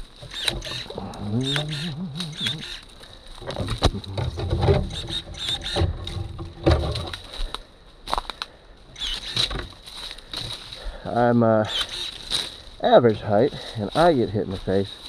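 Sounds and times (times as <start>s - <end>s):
sharp clicks: 0.0s - 6.2s, 8.4s - 9.8s, 11.7s - 12.4s
dull thumps: 3.4s - 7.3s
rustling through dry leaves: 11.7s - 15.0s.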